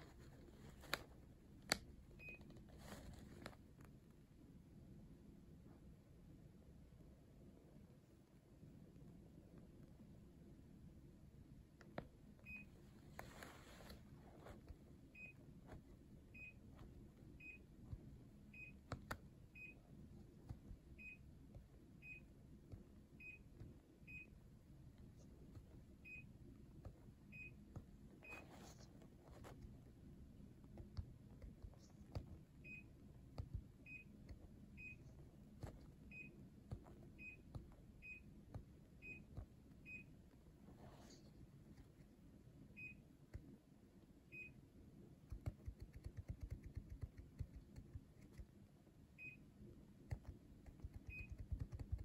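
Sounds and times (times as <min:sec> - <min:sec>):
clicks and rustles handling remote: 0:00.0 - 0:03.9
remote control beeps: 0:18.5 - 0:19.9, 0:33.8 - 0:35.1, 0:37.2 - 0:38.3, 0:39.0 - 0:40.1, 0:50.9 - 0:51.9.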